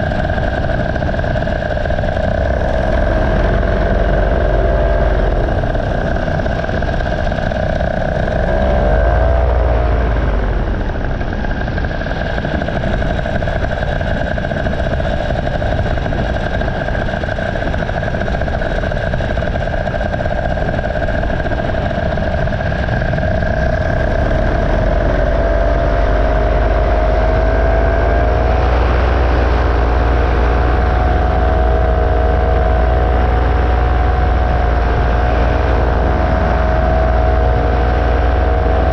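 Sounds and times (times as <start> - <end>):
paramotor engine and propeller: 0.0 - 38.9
rush of noise: 0.0 - 38.9.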